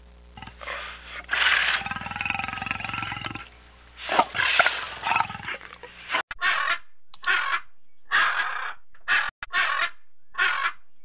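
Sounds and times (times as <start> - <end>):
big cat growling: 0.4 - 5.9.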